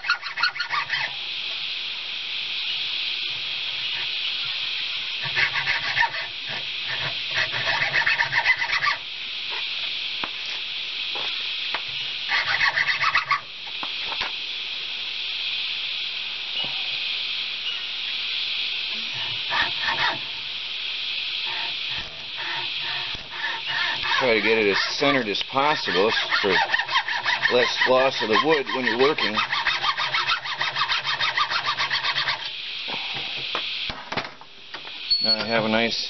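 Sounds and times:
hacksaw rasping through seed pod: 0.0 - 1.1, 5.2 - 9.0, 12.3 - 13.4, 21.5 - 32.5
steady high hiss: 0.0 - 36.0.

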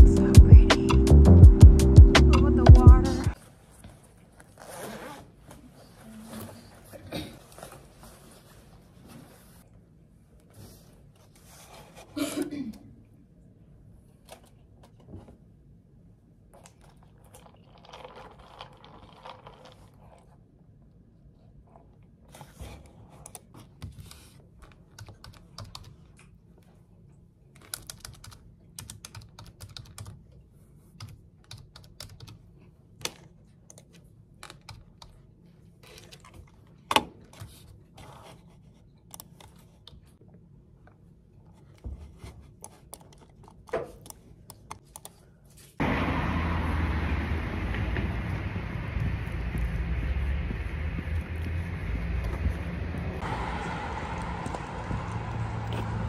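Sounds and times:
typing on computer keyboard: 24.9 - 26.0, 27.6 - 30.2, 31.0 - 32.4
street traffic: 45.8 - 56.0.

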